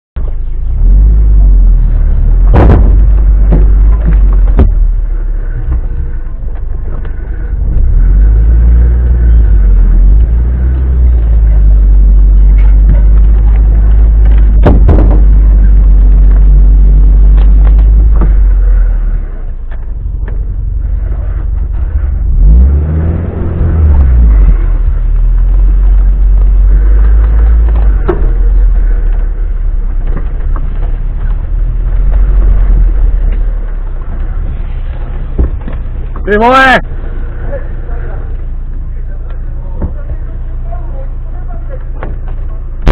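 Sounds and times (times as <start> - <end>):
off-road vehicle engine rumble: 0.2 - 42.9
sharp knocks: 2.4 - 5.0, 14.3 - 15.6.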